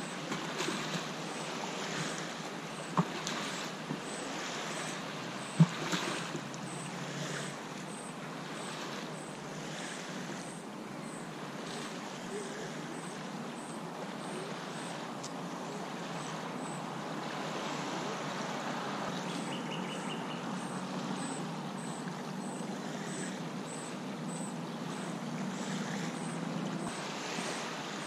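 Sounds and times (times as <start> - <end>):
small waves lapping: 0.0 - 28.0
distant traffic rumble: 10.3 - 28.0
faint high chirp: 19.1 - 25.1.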